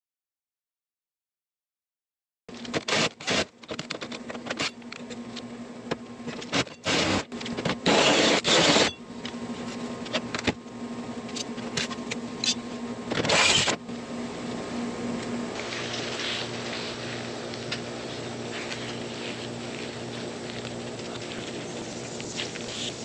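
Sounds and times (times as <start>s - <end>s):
steady low hum: 2.5s - 23.0s
drill grinding through steel: 6.6s - 9.0s, 13.2s - 13.8s.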